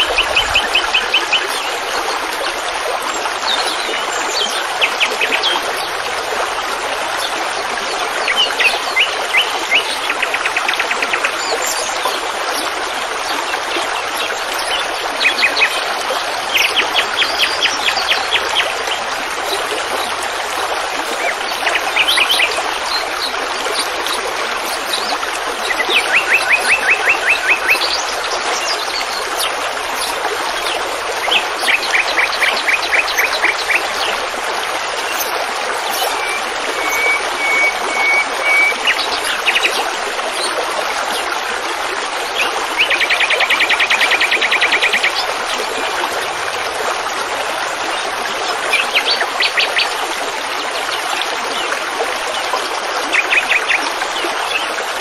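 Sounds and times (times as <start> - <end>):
water flowing: 0.0 - 55.0
songbirds singing trills: 3.4 - 6.0, 7.2 - 34.4, 35.0 - 41.3.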